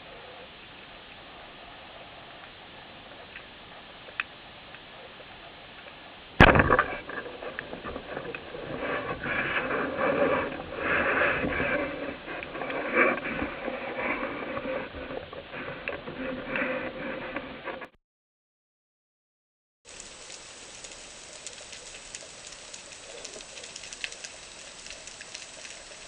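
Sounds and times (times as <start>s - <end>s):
speargun firing underwater: 6.4s - 8.3s
scraping and crackling: 6.4s - 17.9s, 19.9s - 26.0s
faint ticks: 19.9s - 26.0s.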